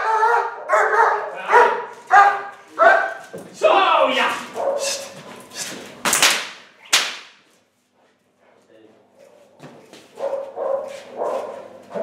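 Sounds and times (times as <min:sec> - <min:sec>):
whip cracks: 0:05.6 - 0:07.4.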